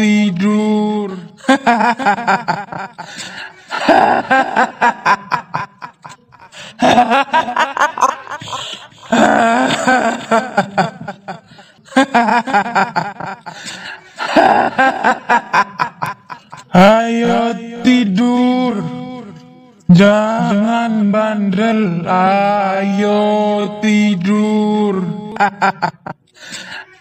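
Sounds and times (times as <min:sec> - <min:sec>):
woman laughing eerily: 0:01.4 - 0:16.7, 0:25.4 - 0:27.0.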